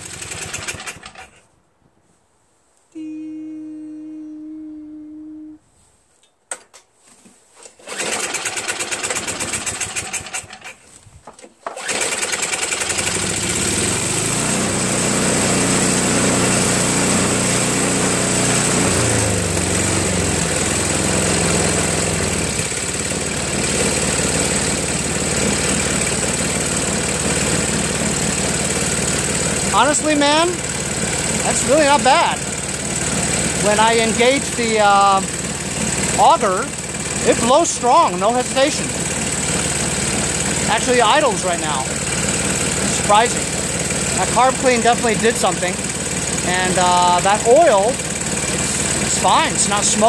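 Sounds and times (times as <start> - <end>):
snowblower engine chugging: 0.0 - 1.4, 7.8 - 10.8, 11.6 - 50.0.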